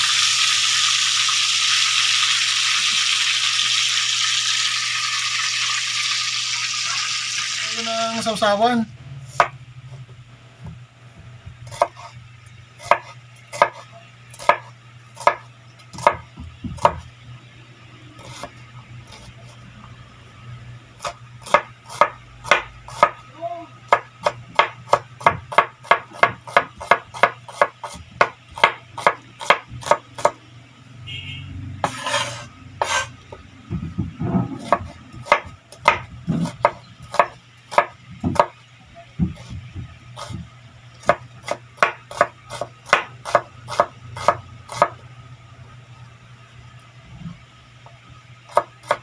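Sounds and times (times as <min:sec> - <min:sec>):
knife chopping on wooden board: 0:09.3 - 0:09.6, 0:11.7 - 0:12.1, 0:12.8 - 0:17.1, 0:21.0 - 0:23.2, 0:23.9 - 0:30.4, 0:31.8 - 0:33.1, 0:33.7 - 0:38.6, 0:39.2 - 0:45.0, 0:48.5 - 0:49.0.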